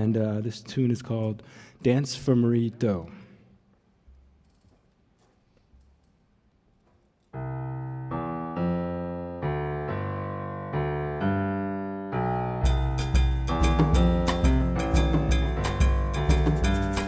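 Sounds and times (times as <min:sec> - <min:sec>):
piano playing jazz chords: 0:07.4 - 0:17.0
drums and band playing: 0:12.7 - 0:17.0.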